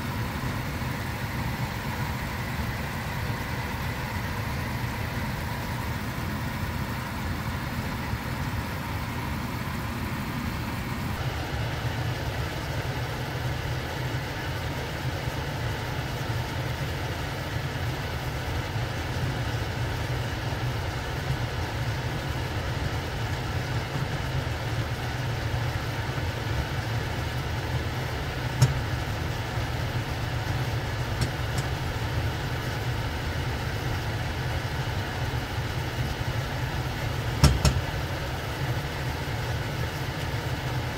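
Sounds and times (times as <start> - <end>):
gas flame rumble: 0.0 - 40.9
light knock: 37.4 - 37.8.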